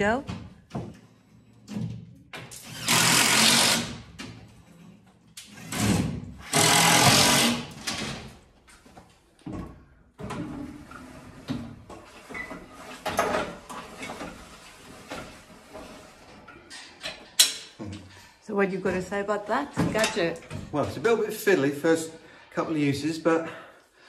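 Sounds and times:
loud rasping bursts: 2.7s - 4.0s, 5.5s - 7.8s.

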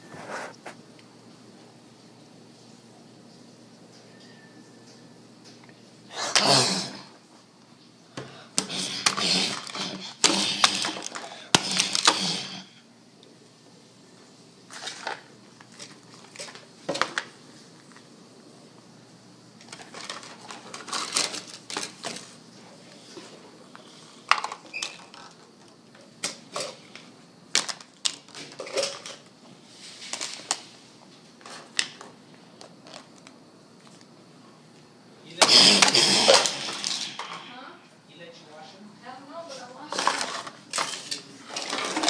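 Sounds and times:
clatter and rustling: 19.6s - 22.4s, 39.9s - 42.0s.

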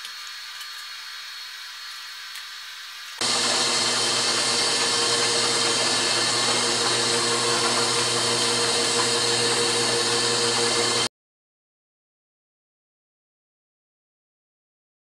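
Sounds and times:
lathe whirring: 3.2s - 11.1s.

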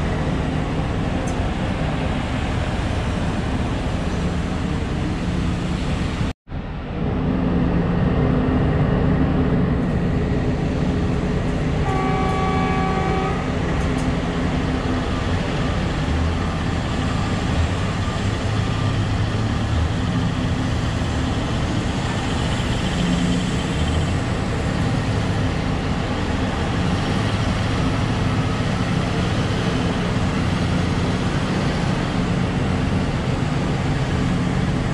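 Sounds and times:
diesel excavator working: 0.0s - 34.9s
horn blast: 11.8s - 13.6s.

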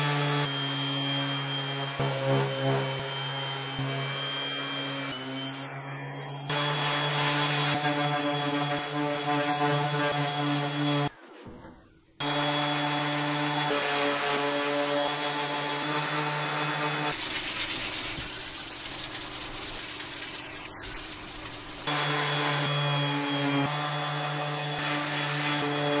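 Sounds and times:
orbital sander humming: 17.9s - 26.0s.

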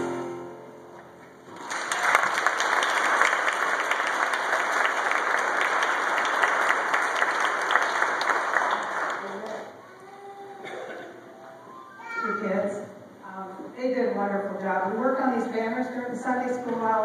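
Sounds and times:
congregation applauding: 1.4s - 9.8s.

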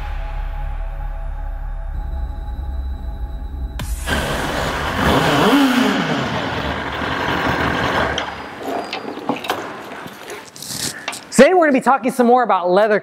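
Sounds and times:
motorcycle engine revving: 3.8s - 10.3s.

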